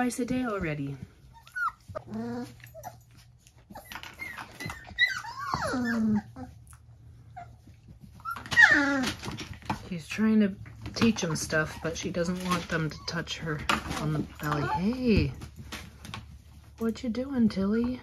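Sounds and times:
puppies whimpering: 0.3s - 9.5s, 11.0s - 15.3s.

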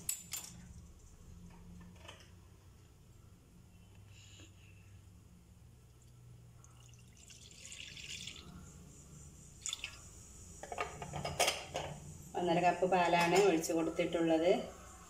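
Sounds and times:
milk pouring into pan: 6.6s - 8.5s.

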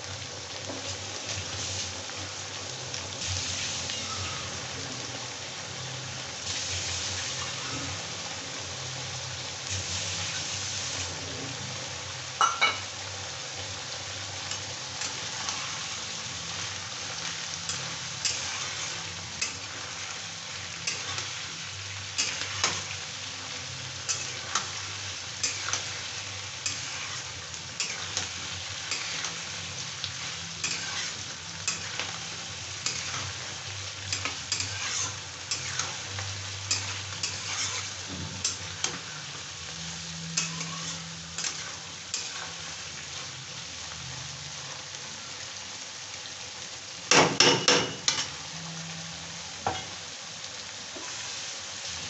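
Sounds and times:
onions sizzling in hot oil: 0.0s - 52.0s
spatula scraping a pan: 17.7s - 20.1s, 20.7s - 21.5s, 24.0s - 33.5s, 34.1s - 39.4s, 40.4s - 42.8s.

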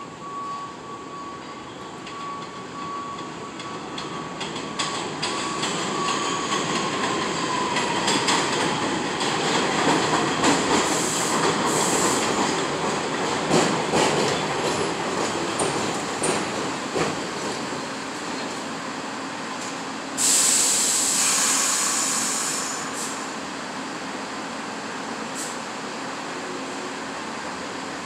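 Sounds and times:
subway train rumbling past: 0.0s - 28.0s
wheels clacking over rail joints: 3.2s - 18.7s
high squeal: 5.3s - 8.2s.

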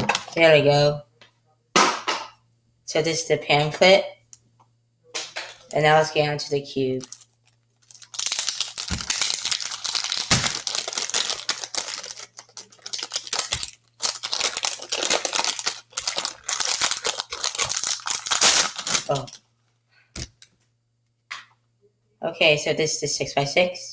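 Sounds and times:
plastic wrap crinkling and tearing: 7.0s - 19.4s.

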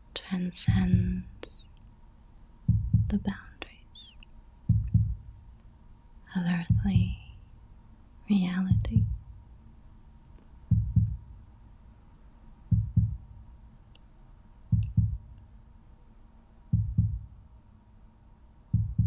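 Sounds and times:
slow heartbeat: 0.7s - 1.6s, 2.6s - 3.5s, 4.6s - 5.5s, 6.6s - 7.3s, 8.7s - 9.4s, 10.6s - 11.5s, 12.7s - 13.5s, 14.7s - 15.4s, 16.7s - 17.5s, 18.7s - 19.0s.

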